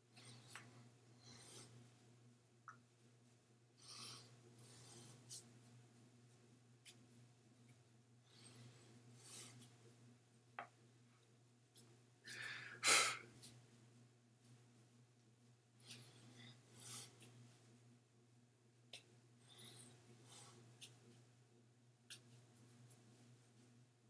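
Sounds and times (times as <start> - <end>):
noisy breaths or rubbing: 0.2 - 1.8, 3.8 - 5.5, 15.8 - 17.4.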